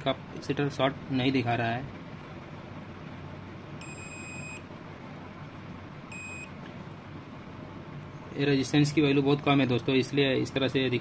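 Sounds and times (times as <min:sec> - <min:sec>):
multimeter beeps: 0:03.8 - 0:04.6, 0:06.1 - 0:06.6.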